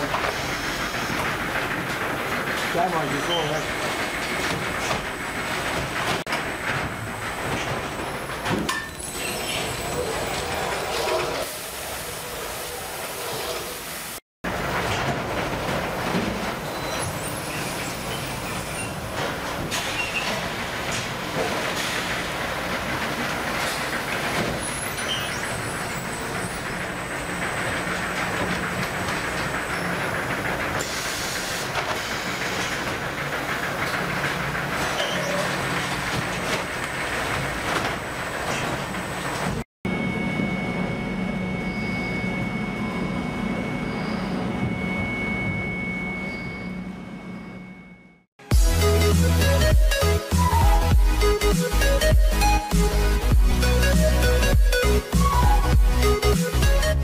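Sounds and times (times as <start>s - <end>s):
machinery rumble and clatter: 0.0s - 12.4s, 14.4s - 57.0s
faint high whine: 39.9s - 48.2s.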